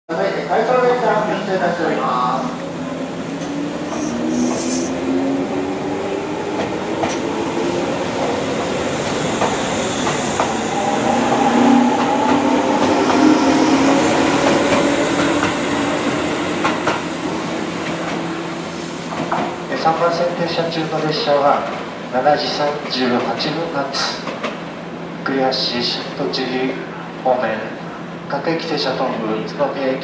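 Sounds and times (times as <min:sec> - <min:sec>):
train running rumble: 0:02.1 - 0:22.1.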